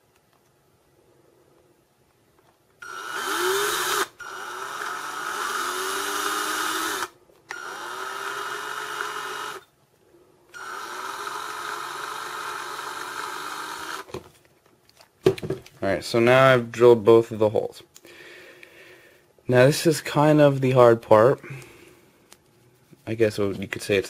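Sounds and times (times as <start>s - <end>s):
power drill whining: 2.8s - 9.7s, 10.5s - 14.1s.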